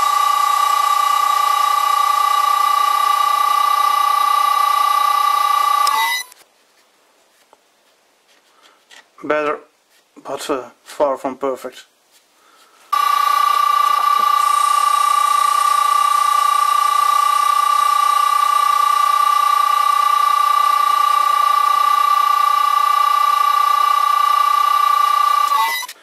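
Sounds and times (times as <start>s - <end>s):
high-pitched motor whine: 0.0s - 6.4s, 13.0s - 26.0s.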